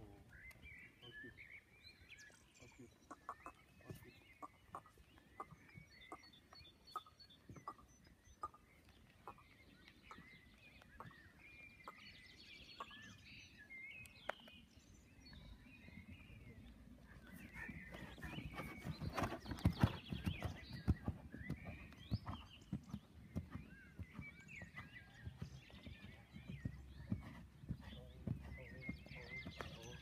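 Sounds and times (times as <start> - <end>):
horse hooves on sand: 17.3 - 30.0.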